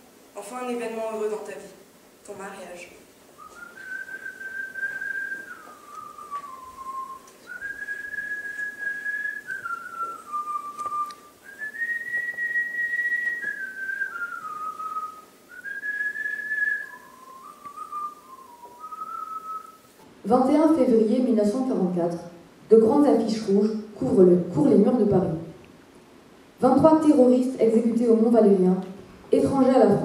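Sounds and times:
person whistling a slow melody: 0:03.4 - 0:19.9.

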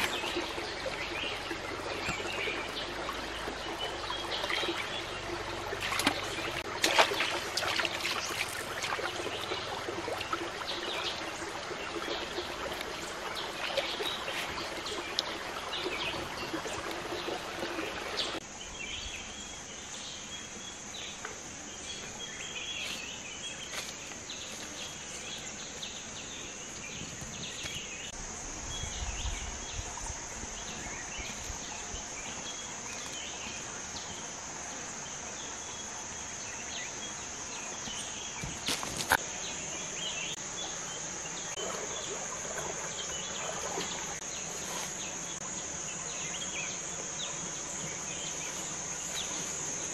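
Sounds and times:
hands splashing in stream: 0:00.0 - 0:01.3, 0:03.7 - 0:18.3
water trickling: 0:00.0 - 0:18.4, 0:39.9 - 0:49.9
insect chirps: 0:00.0 - 0:49.9.

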